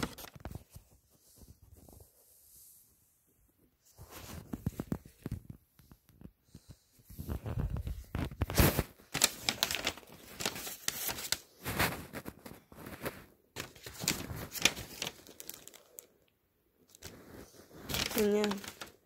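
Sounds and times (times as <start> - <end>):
paper rustling and crinkling: 0.0 - 2.4, 3.8 - 16.1, 16.8 - 19.0.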